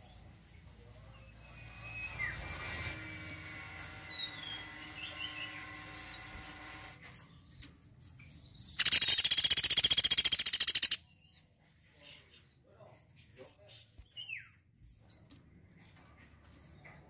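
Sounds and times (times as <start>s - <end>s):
faint bird chirps: 8.4s - 13.0s
woodpecker rattling trill: 8.7s - 11.0s.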